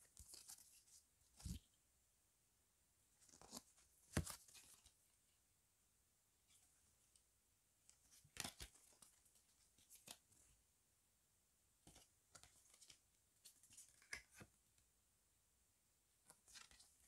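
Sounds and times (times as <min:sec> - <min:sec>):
paper cards rustling: 0:00.0 - 0:01.7, 0:03.2 - 0:04.9, 0:08.0 - 0:10.2, 0:11.8 - 0:14.5, 0:16.3 - 0:17.0.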